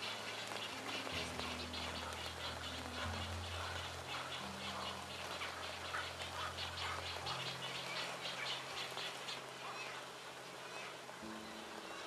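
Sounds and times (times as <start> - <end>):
low music drone: 0.0 - 9.3
falling water rushing: 0.0 - 12.0.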